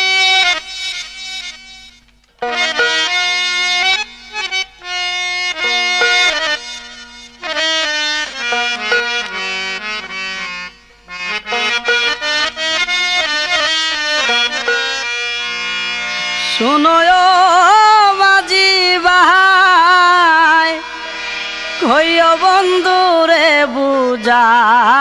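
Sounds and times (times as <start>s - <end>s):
sharply struck instrumental notes: 2.4s - 4.1s, 5.6s - 7.6s, 8.3s - 10.1s, 14.2s - 15.7s
person singing wavering notes: 16.4s - 25.0s.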